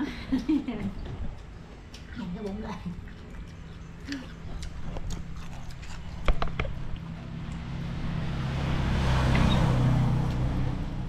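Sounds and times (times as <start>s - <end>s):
motor vehicle passing by: 3.5s - 11.0s.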